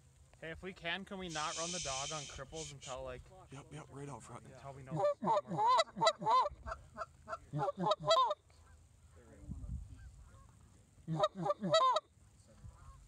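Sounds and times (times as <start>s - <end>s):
goose calls honking: 1.3s - 3.0s, 4.9s - 8.4s, 11.1s - 12.1s.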